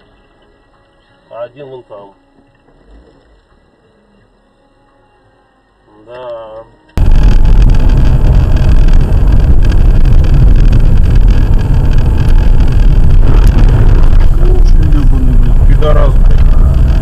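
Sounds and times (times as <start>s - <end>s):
car driving noise: 7.0s - 17.0s.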